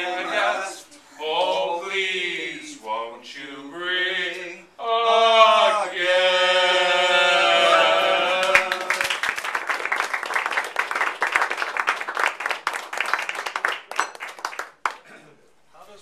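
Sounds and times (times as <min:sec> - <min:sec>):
group singing held note: 0:00.0 - 0:09.2
people applauding: 0:08.0 - 0:15.1.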